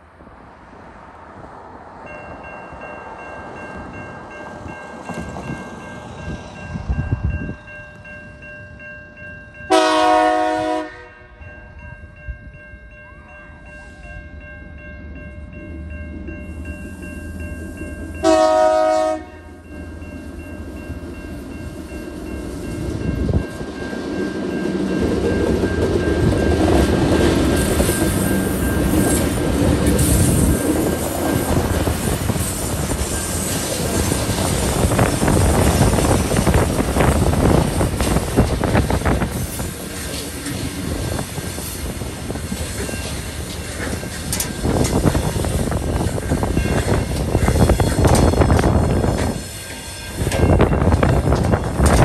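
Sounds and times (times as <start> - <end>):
diesel locomotive rumble: 0.0 - 52.0
locomotive horn blasts: 9.7 - 11.4, 18.2 - 19.6.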